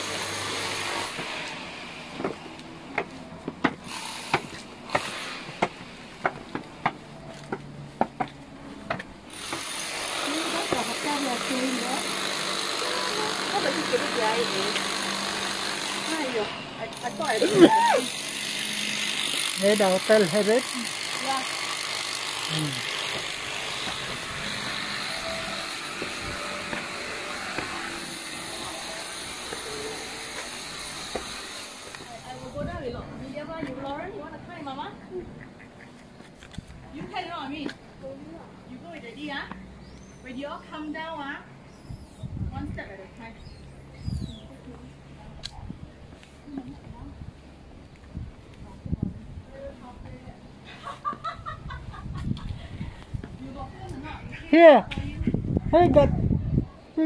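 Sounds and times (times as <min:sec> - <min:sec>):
outdoor background hiss: 0:00.0 - 0:56.0
footsteps on concrete stairs: 0:00.6 - 0:11.6, 0:23.0 - 0:32.2, 0:35.9 - 0:37.9, 0:52.9 - 0:53.4.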